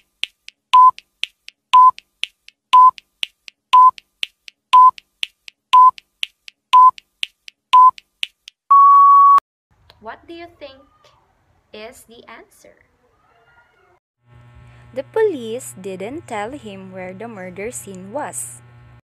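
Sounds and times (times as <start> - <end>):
electronic timer beeps: 0.8 - 1.0, 1.8 - 2.0, 2.8 - 3.0, 3.8 - 4.0, 4.8 - 5.0, 5.8 - 6.0, 6.8 - 7.0, 7.8 - 8.0, 8.7 - 9.4.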